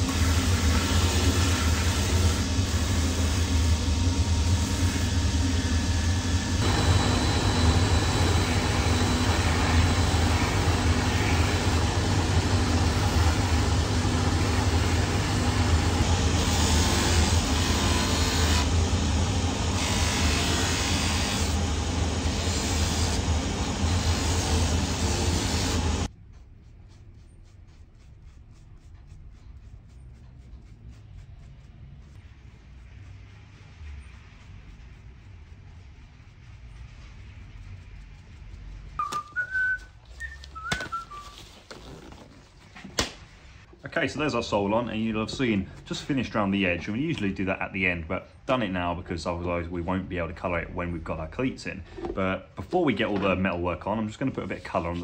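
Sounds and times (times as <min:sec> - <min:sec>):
machine motor humming: 0:00.0 - 0:26.1
sanding wheel grinding leather: 0:00.0 - 0:39.0.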